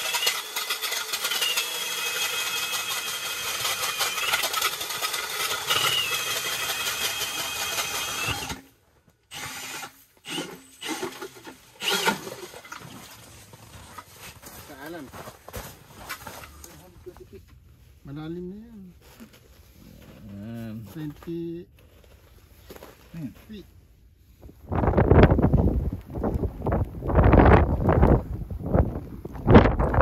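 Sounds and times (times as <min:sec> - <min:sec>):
power drill whining: 0:00.0 - 0:08.7, 0:09.3 - 0:13.0.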